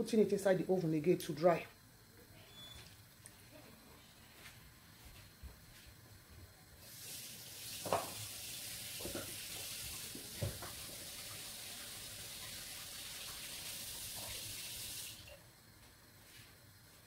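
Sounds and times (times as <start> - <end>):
fish sizzling in oven: 6.8 - 15.4.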